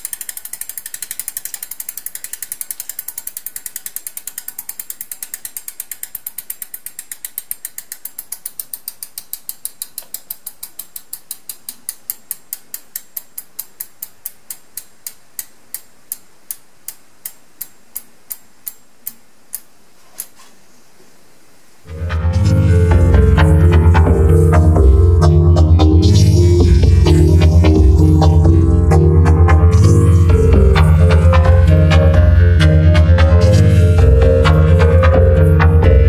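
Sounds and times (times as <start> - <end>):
freehub pawls clicking: 0.0 - 18.8.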